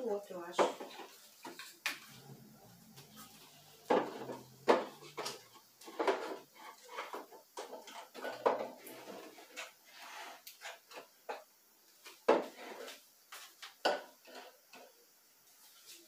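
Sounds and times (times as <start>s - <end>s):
plastic bottles knocking on shelves: 3.8s - 6.5s.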